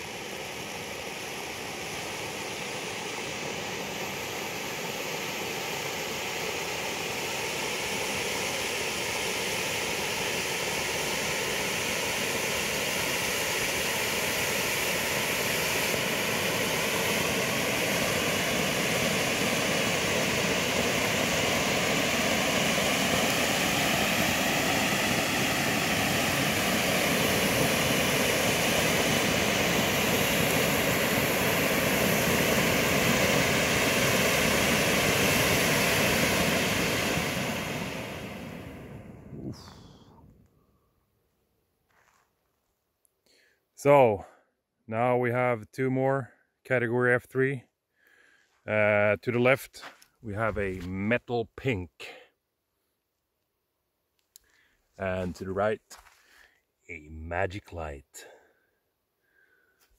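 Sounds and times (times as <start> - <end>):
firework fountains hissing: 0.0 - 40.5, 54.3 - 58.5.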